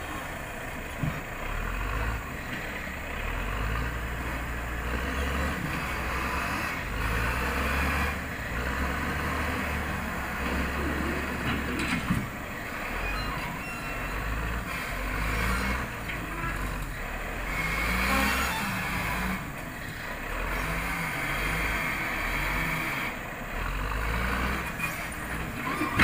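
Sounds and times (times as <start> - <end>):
diesel engine working under load: 0.0 - 26.0.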